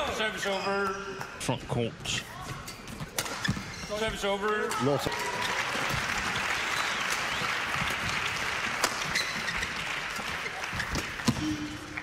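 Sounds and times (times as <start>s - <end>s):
crowd applauding: 5.1s - 12.0s.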